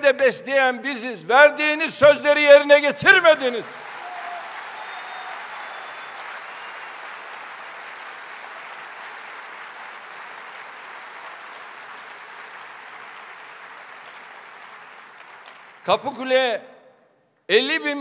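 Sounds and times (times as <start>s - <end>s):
large audience applauding: 3.1s - 16.3s.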